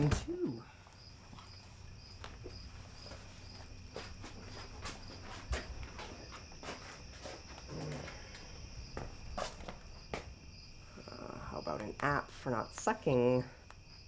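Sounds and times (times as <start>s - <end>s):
crickets chirping: 0.0s - 14.0s
footsteps: 1.2s - 10.4s.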